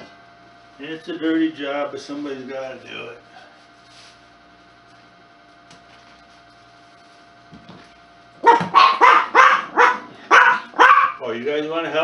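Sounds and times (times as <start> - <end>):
faint steady hum: 0.0 - 12.0
dogs barking: 8.4 - 11.3.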